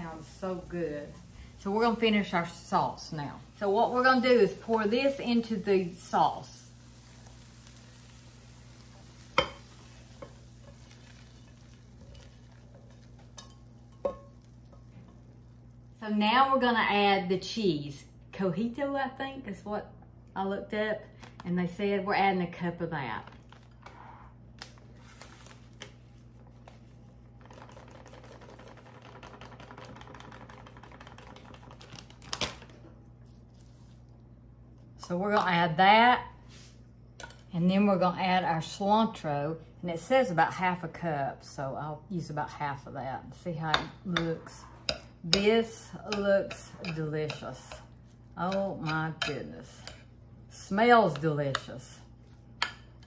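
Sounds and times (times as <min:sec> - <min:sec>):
spatula scraping a skillet: 0:44.2 - 0:45.4, 0:46.1 - 0:50.1.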